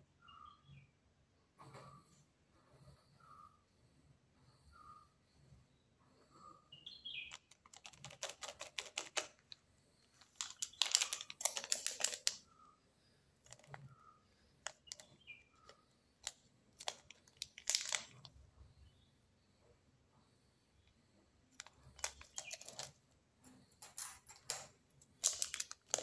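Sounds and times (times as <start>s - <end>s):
plastic wrapper crackling: 10.2s - 12.4s, 14.6s - 18.3s, 21.6s - 23.0s, 25.2s - 26.0s.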